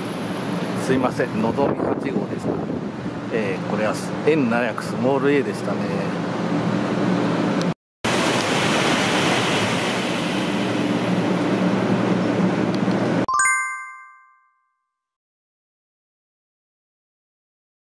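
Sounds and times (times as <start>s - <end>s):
high-speed train rushing past: 8.1s - 12.6s
short bright chime: 13.3s - 14.8s.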